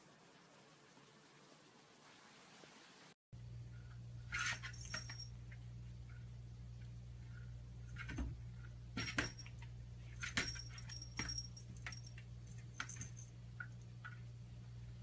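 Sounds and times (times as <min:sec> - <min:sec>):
cat collar bell jingling: 0:04.4 - 0:05.4, 0:09.1 - 0:13.4.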